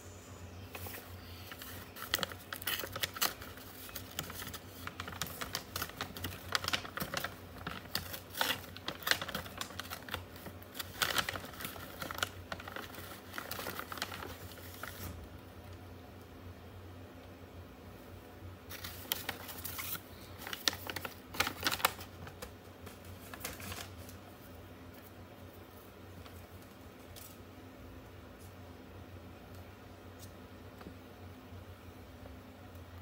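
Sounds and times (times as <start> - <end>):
paper bag rustling and crinkling: 0.7 - 15.3, 18.7 - 25.1.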